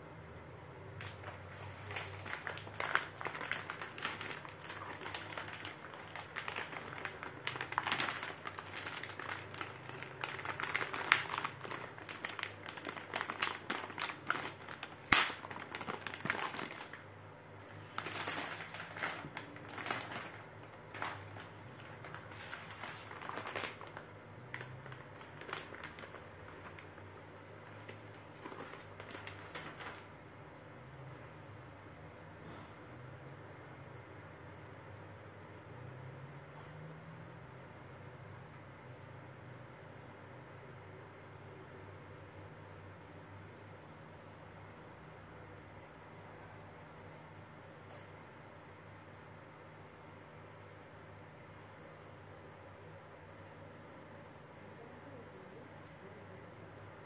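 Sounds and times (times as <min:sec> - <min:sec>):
plastic packaging crinkling: 0:00.9 - 0:17.1, 0:17.7 - 0:30.2.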